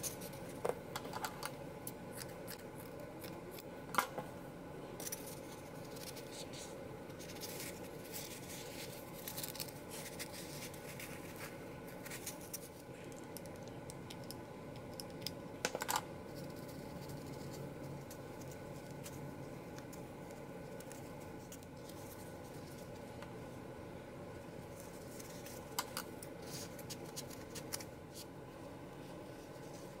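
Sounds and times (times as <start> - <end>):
faint steady hum: 0.0 - 30.0
paper rustling and scratching: 5.0 - 13.0, 16.3 - 23.2, 24.7 - 28.3.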